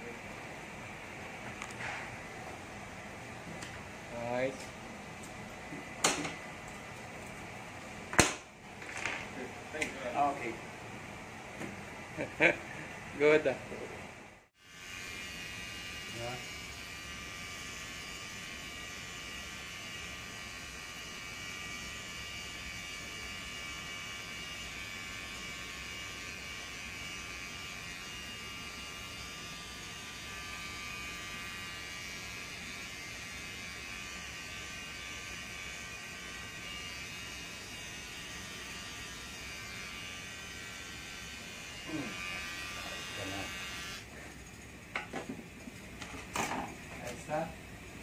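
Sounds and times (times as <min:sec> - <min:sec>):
electric hair clippers buzzing: 0:11.6 - 0:13.9, 0:14.6 - 0:47.2.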